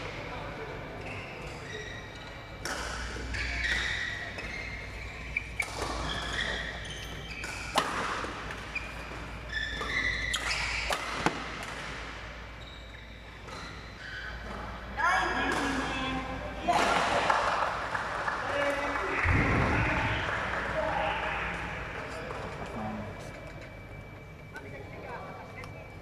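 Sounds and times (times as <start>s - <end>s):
shoes squeaking on court: 1.0s - 7.8s, 8.4s - 11.6s, 12.4s - 14.8s.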